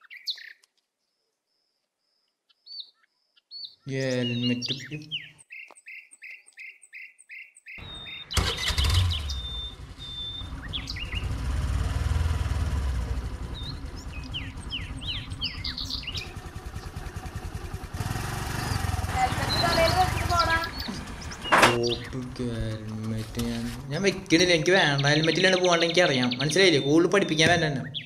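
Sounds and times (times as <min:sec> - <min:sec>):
birds chirping: 0:00.0 - 0:28.0
scooter engine rumbling: 0:07.8 - 0:25.1.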